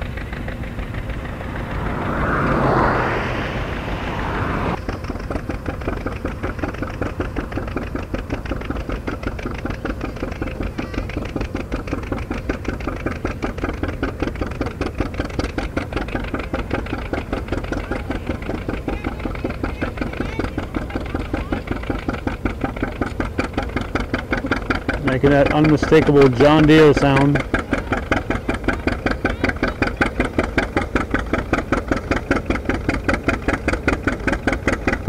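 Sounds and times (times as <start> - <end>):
tractor engine under load: 0.0 - 3.5, 4.2 - 35.0
loud rushing noise: 0.4 - 4.8.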